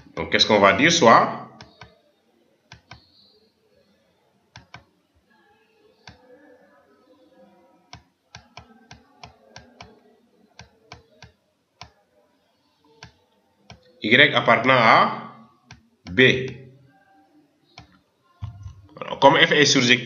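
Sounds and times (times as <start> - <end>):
computer mouse clicks: 1.6 - 2.0, 2.7 - 3.1, 4.5 - 4.9, 17.8 - 18.0.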